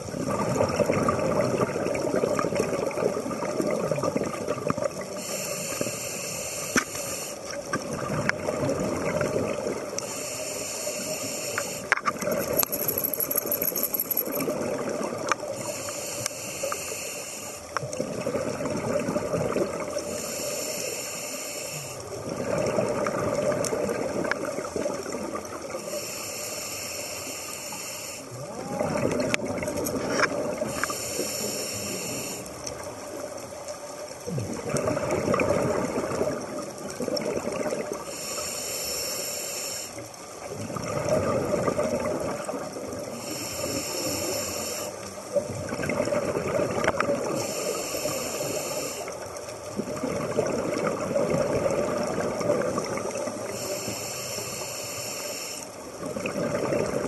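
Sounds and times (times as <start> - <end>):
exhaled bubbles rumbling: 0.0 - 5.2, 7.6 - 10.0, 12.1 - 15.7, 17.8 - 20.2, 22.1 - 25.8, 28.3 - 30.8, 32.6 - 38.1, 40.4 - 43.3, 45.2 - 47.5, 49.4 - 53.6, 55.9 - 57.0
regulator hiss: 5.2 - 7.5, 10.0 - 12.0, 15.5 - 17.7, 20.1 - 22.2, 25.8 - 28.4, 30.7 - 32.6, 38.1 - 40.1, 43.1 - 45.1, 47.3 - 49.2, 53.4 - 55.9.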